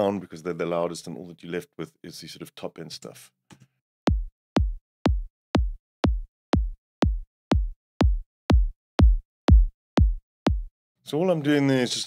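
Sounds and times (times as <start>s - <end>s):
compressed electronic kick drum: 4.1s - 10.7s.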